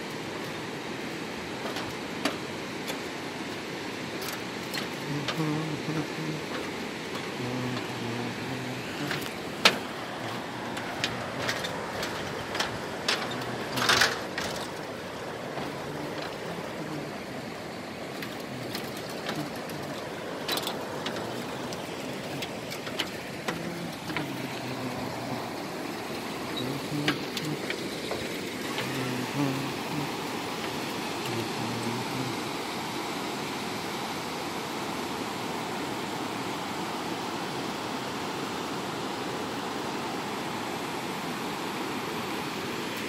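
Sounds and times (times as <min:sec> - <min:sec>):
river rushing: 0:00.0 - 0:43.0
footsteps on metal bridge deck: 0:08.8 - 0:16.8.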